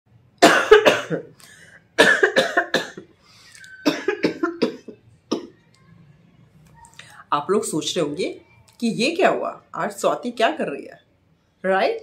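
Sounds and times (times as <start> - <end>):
woman coughing into hands: 0.4 - 1.3, 2.0 - 3.1, 3.8 - 5.6.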